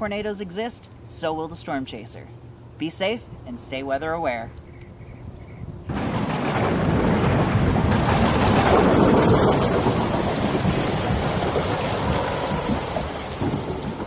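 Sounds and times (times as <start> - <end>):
rolling thunder: 5.6 - 14.0
heavy rain: 5.9 - 14.0.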